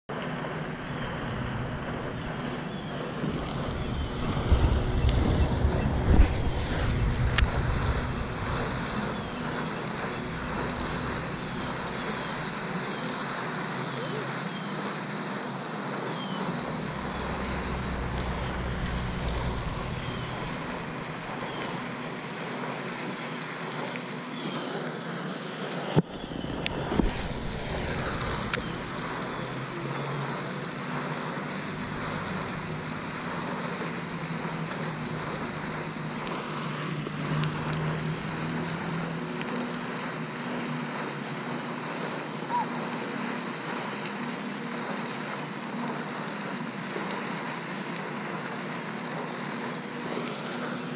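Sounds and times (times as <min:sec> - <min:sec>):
wind: 0:00.1 - 0:50.9
faint low hum: 0:16.1 - 0:22.1.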